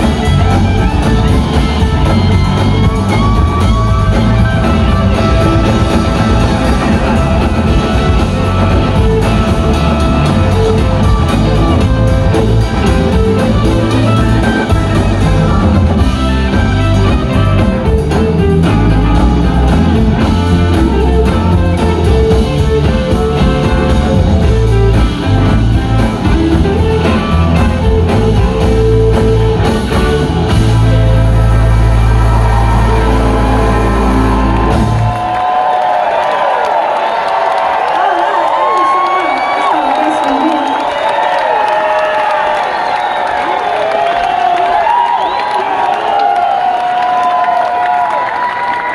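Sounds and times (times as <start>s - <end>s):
electric guitars: 0.0s - 35.9s
drum kit: 0.0s - 36.2s.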